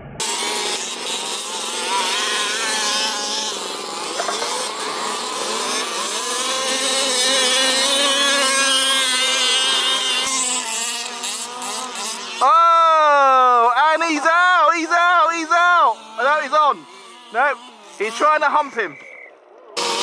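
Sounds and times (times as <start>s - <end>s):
small engines revving: 0.0s - 20.0s.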